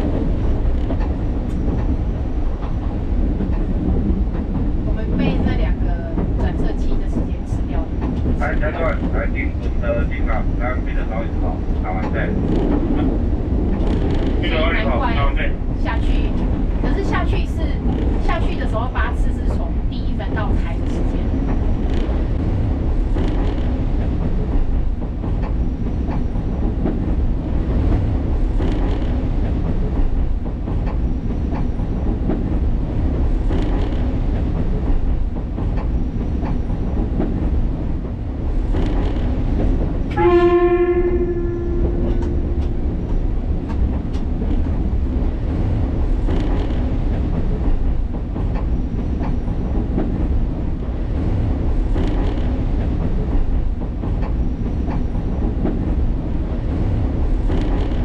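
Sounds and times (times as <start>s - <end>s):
train rumbling: 0.0s - 58.0s
train horn blast: 40.1s - 42.8s.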